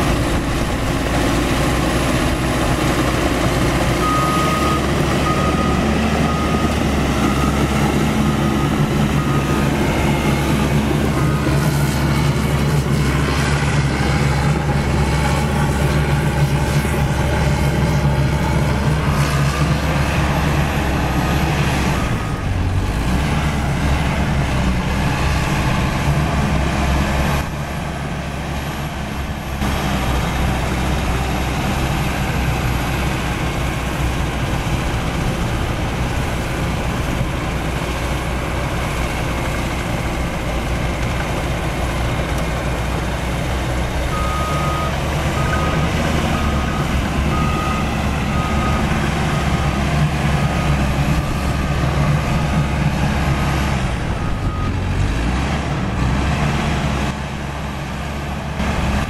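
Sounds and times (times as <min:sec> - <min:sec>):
bulldozer diesel engine running: 0:00.0 - 0:59.0
reversing alarm beeping: 0:02.8 - 0:12.7, 0:15.4 - 0:23.4, 0:44.1 - 0:55.0.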